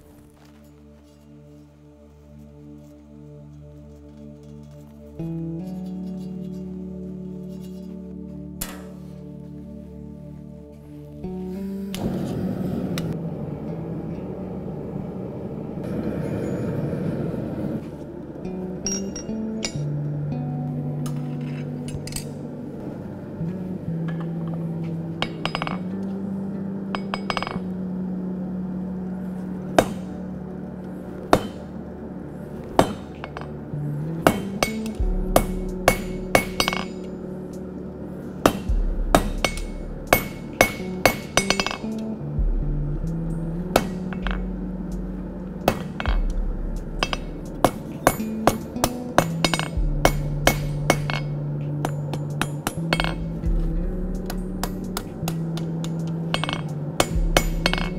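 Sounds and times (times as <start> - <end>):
background music with bass: 0.0 - 16.0, 17.8 - 57.9
hammer striking metal on anvil: 8.6 - 9.0, 18.8 - 19.9, 25.2 - 25.9, 26.9 - 27.6, 29.8 - 30.1, 31.3 - 31.7, 32.8 - 33.5, 34.2 - 37.1, 38.4 - 42.0, 43.7 - 44.4, 45.7 - 46.4, 47.0 - 53.6, 54.2 - 57.9.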